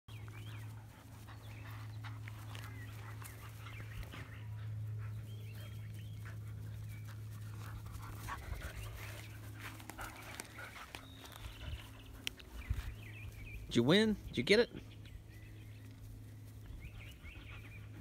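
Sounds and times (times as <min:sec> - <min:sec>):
dogs panting: 0:00.1 - 0:13.7, 0:14.8 - 0:18.0
dogs scuffling on grass: 0:00.1 - 0:18.0
steady low drone: 0:00.1 - 0:18.0.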